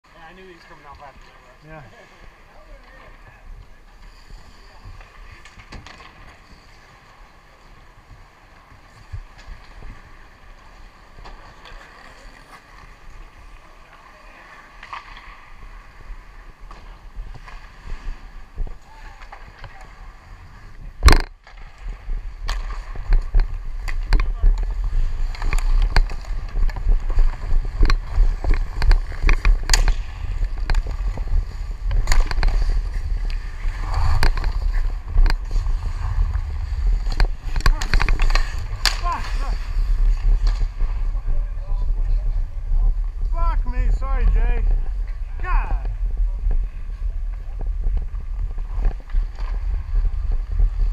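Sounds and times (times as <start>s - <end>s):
skate blades scraping on ice: 0.6s - 42.4s, 43.6s - 50.9s
low rumble: 22.0s - 50.9s
hockey stick tapping puck: 22.4s - 31.3s, 37.1s - 39.4s
sharp knocks on ice: 28.6s - 30.1s.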